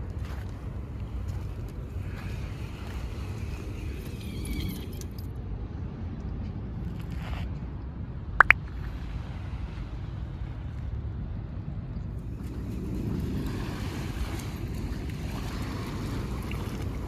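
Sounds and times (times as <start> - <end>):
wind and surf rumble: 0.0 - 17.0
sharp high-pitched squeaks: 4.1 - 5.2.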